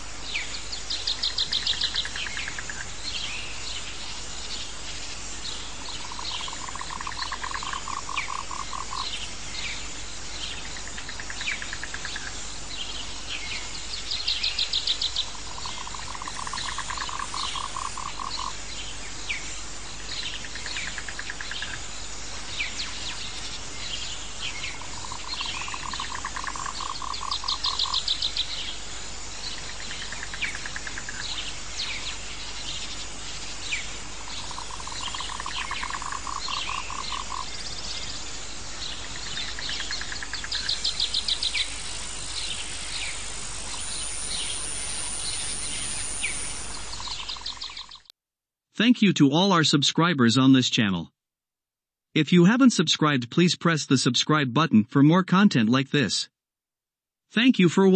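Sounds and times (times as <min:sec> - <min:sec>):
steady hiss: 0:00.0 - 0:48.0
high rattling calls: 0:00.2 - 0:48.1
low pulsed frog trill: 0:05.9 - 0:09.1, 0:15.3 - 0:18.6, 0:24.7 - 0:28.0, 0:34.4 - 0:37.6.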